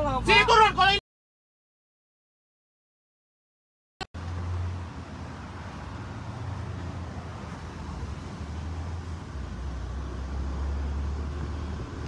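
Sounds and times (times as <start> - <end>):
low engine hum: 4.2 - 12.0
road and traffic hiss: 4.2 - 12.0.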